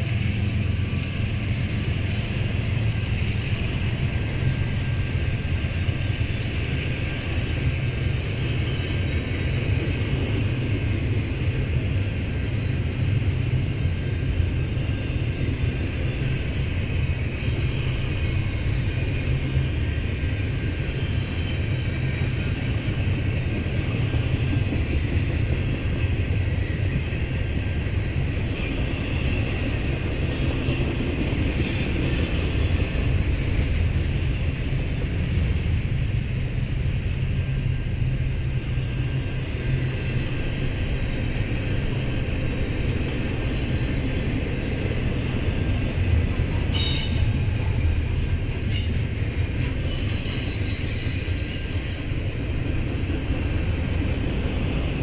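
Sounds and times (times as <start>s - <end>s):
freight train wheels rumbling: 0.0s - 55.0s
high-pitched wheel squeals: 49.8s - 52.5s.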